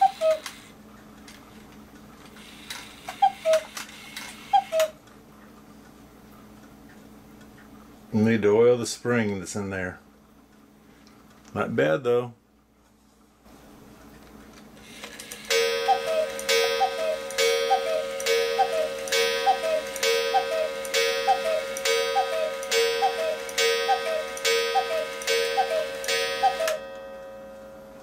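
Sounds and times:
cuckoo clock two-note call: 0:00.0 - 0:00.5, 0:04.5 - 0:05.0, 0:15.5 - 0:27.9.

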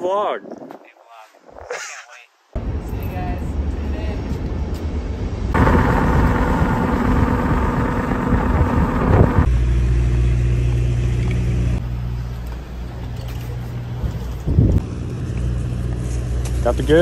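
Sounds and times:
road and wind noise: 0:00.0 - 0:17.0
car engine hum: 0:05.1 - 0:16.7.

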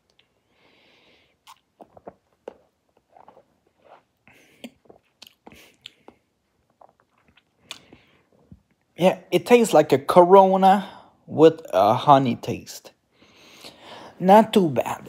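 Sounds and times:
man swallowing and lip smacks: 0:01.4 - 0:08.8.

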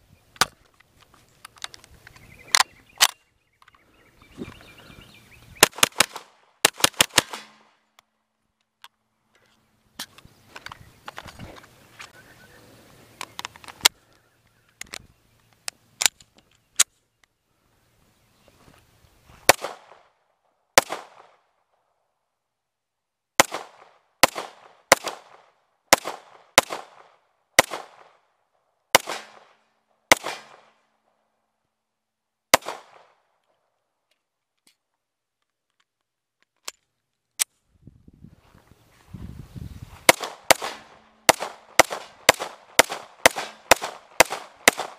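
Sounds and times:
pistol shots with echo: 0:05.6 - 0:07.7, 0:19.5 - 0:20.1, 0:20.8 - 0:21.4, 0:23.4 - 0:28.2, 0:29.0 - 0:30.7, 0:32.5 - 0:33.2, 0:40.1 - 0:44.9.

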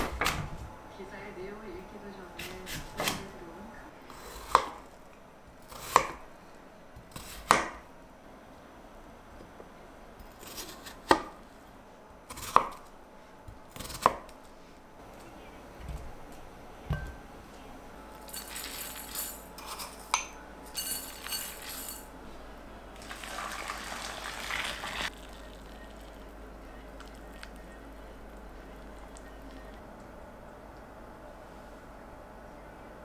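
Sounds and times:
dishware clinking: 0:16.9 - 0:17.2, 0:18.2 - 0:22.1.

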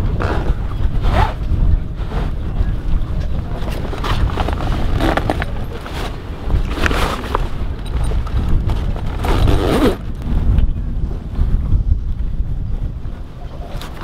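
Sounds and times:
wind rumble on microphone: 0:00.0 - 0:14.0
sailcloth rustling and scraping: 0:00.2 - 0:10.2.

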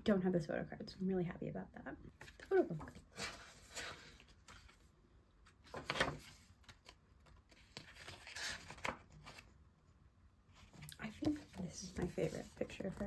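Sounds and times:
paper pages rustling: 0:02.2 - 0:09.6, 0:10.5 - 0:13.0.

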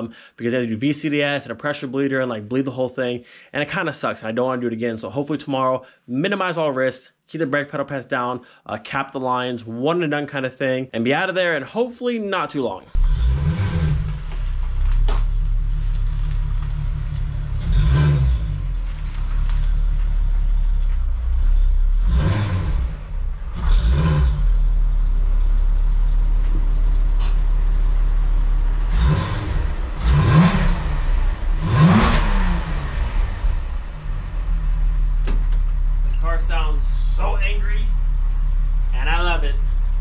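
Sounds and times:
car engine idling: 0:13.0 - 0:40.0
engine throttle blips: 0:13.0 - 0:40.0.

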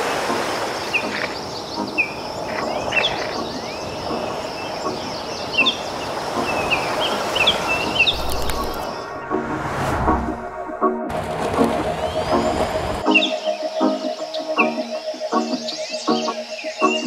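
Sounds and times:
low rumble: 0:08.5 - 0:11.1.

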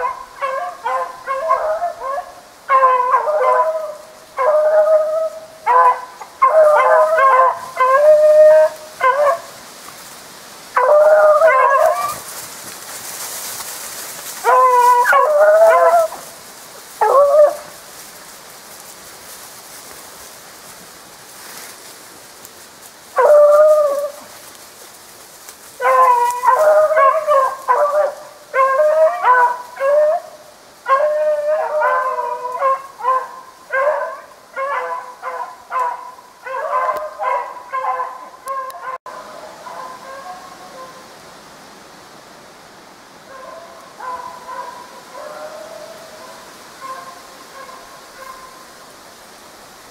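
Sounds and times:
hounds baying: 0:00.0 - 0:09.5, 0:10.7 - 0:12.4, 0:14.3 - 0:16.4, 0:17.0 - 0:17.7, 0:23.2 - 0:24.3, 0:25.8 - 0:41.0, 0:43.3 - 0:48.6.

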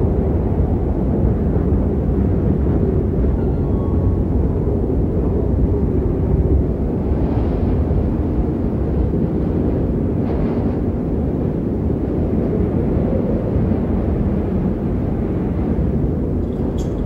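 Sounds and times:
wind blowing across microphone: 0:00.0 - 0:17.0.

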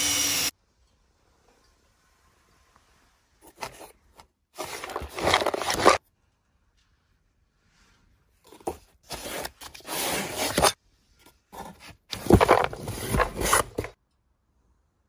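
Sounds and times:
scraping and rubbing handling noise: 0:01.9 - 0:14.0.

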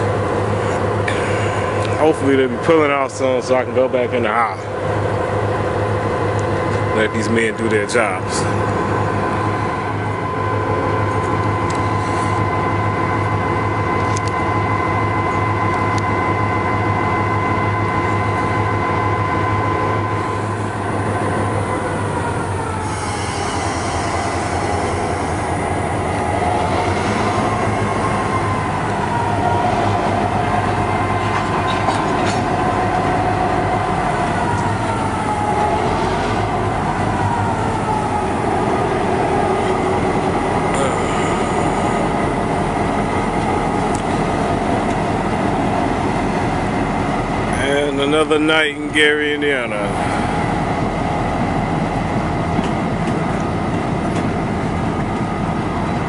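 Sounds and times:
diesel locomotive engines rumbling: 0:00.0 - 0:56.0
wheels squealing on rail: 0:17.1 - 0:42.6.

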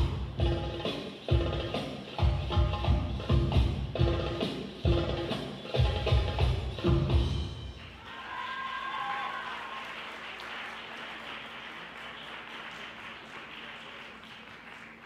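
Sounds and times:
audience applauding: 0:07.8 - 0:15.0.

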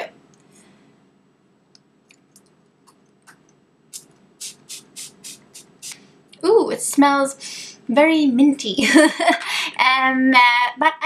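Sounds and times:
spray bottle hissing: 0:03.3 - 0:06.0.

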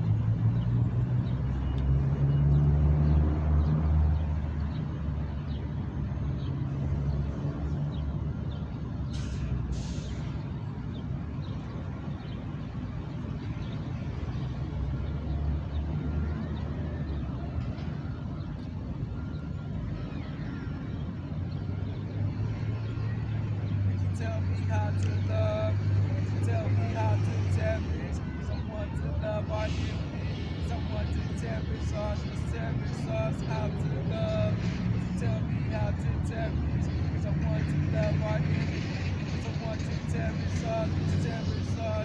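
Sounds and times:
street traffic: 0:00.0 - 0:42.0
heavy engine rumble: 0:09.0 - 0:11.0, 0:15.6 - 0:42.0.

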